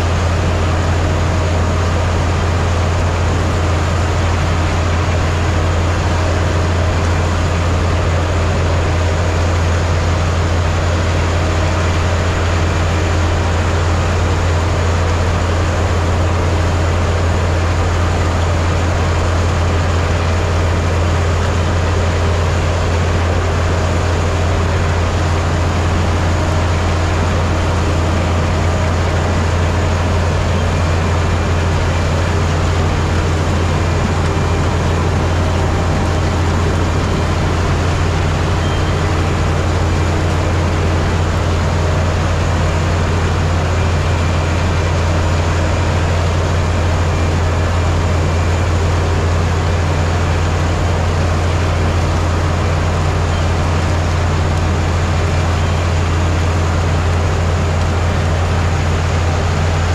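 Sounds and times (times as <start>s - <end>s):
harvester engine droning: 0.0s - 59.9s.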